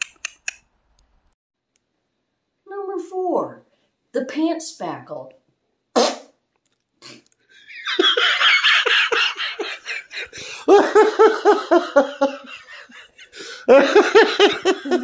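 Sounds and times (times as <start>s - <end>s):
woman laughing hard: 7.6s - 15.0s.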